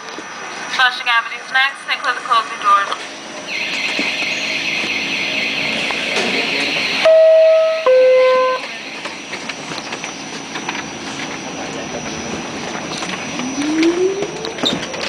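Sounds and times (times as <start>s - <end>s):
subway car humming: 0.0s - 15.0s
low whine rising in pitch: 3.1s - 15.0s
two-tone door chime: 3.5s - 9.1s.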